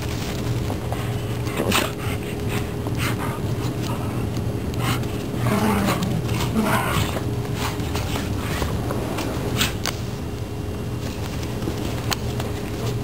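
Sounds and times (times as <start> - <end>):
low dog sound: 1.0 - 8.8.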